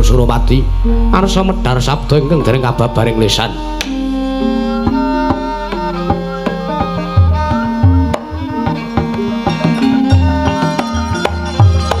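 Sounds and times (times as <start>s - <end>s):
gamelan ensemble playing: 0.0s - 12.0s
hand drum strokes: 4.8s - 12.0s.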